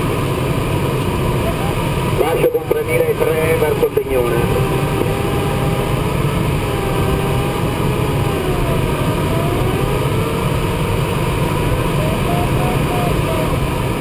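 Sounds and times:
airflow rushing in cockpit: 0:00.0 - 0:14.0.

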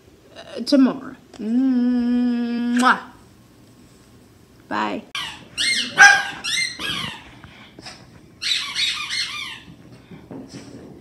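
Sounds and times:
puppies squeaking: 0:05.2 - 0:07.4, 0:08.4 - 0:09.8.

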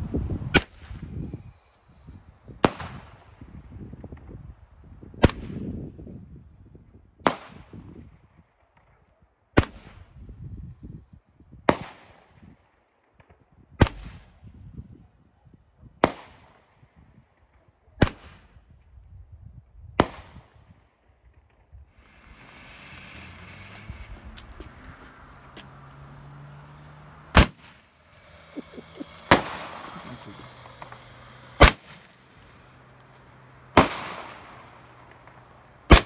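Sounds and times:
fireworks bangs echoing: 0:22.0 - 0:36.0.

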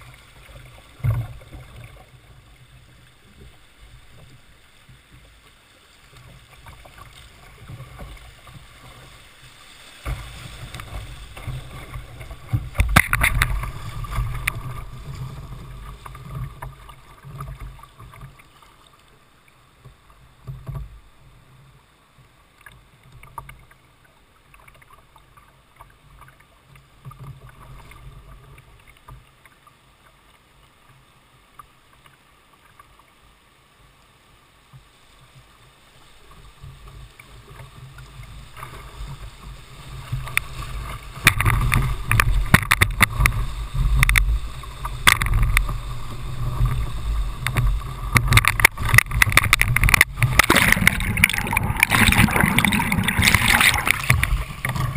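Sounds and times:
whitewater rushing and splashing: 0:00.0 - 0:18.9, 0:35.0 - 0:54.9.

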